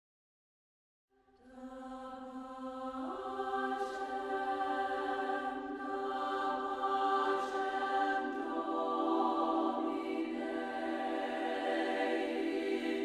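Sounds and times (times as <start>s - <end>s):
women's choir singing held chords: 1.4s - 13.0s.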